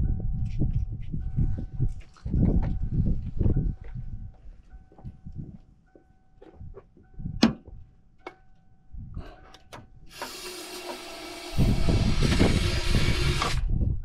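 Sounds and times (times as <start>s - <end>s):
faint car warning chime: 2.5s - 10.1s.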